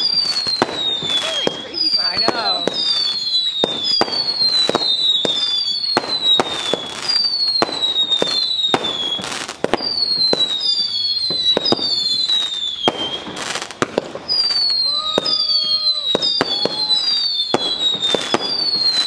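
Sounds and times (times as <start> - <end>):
firework pops and cracks: 0.0 - 19.0
whistling fireworks: 0.0 - 19.0.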